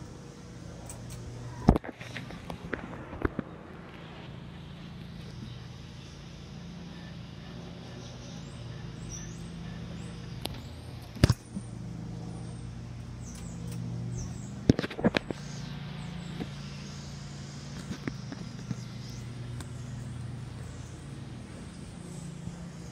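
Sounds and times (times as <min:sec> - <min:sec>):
ceiling fan motor hum: 0:00.0 - 0:22.9.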